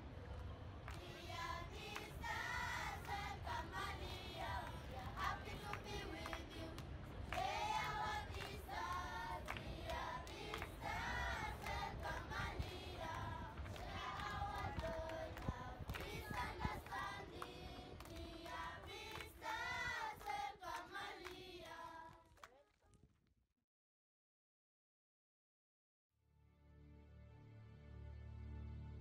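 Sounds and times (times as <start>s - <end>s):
hand claps: 1.8s - 3.2s, 4.0s - 23.0s.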